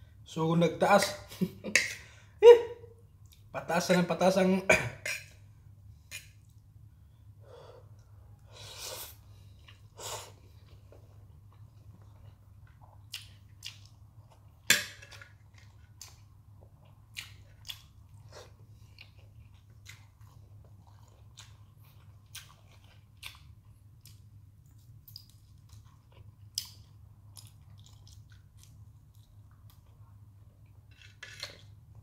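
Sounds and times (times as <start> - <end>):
low steady hum: 0.0 - 32.0
person chewing food: 9.0 - 31.8.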